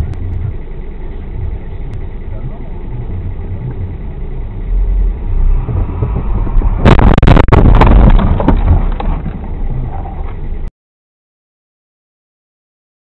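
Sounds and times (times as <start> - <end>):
car road and engine rumble: 0.0 - 10.7
vehicle collision crashing: 5.4 - 10.4.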